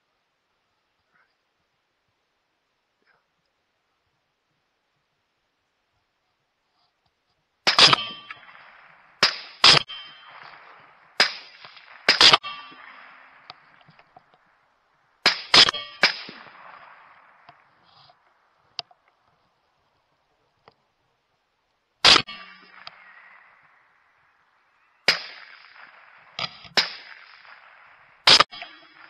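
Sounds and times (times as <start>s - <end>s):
rifle shots echoing: 7.6s - 18.6s, 22.0s - 29.0s.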